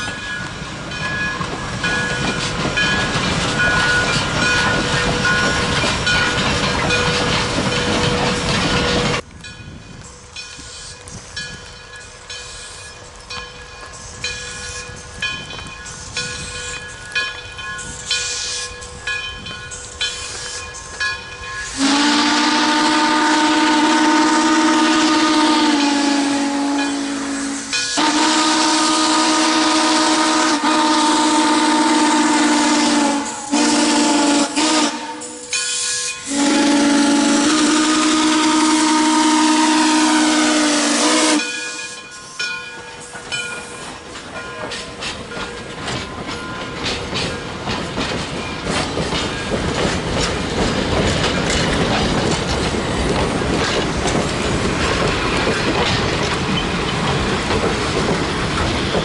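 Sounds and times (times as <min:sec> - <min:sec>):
crossing bell ringing: 0:00.0 - 0:22.6, 0:25.6 - 0:28.3, 0:34.9 - 0:37.0, 0:41.3 - 0:50.4, 0:54.8 - 0:57.4
steam locomotive chime whistle: 0:00.0 - 0:47.4.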